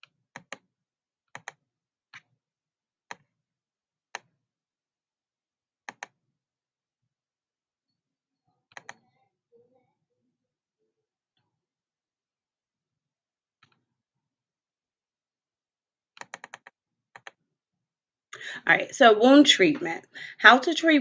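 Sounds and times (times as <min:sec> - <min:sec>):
computer mouse clicking: 0:00.3 - 0:00.7, 0:01.3 - 0:02.2, 0:05.9 - 0:06.2, 0:08.7 - 0:09.1, 0:16.2 - 0:17.4.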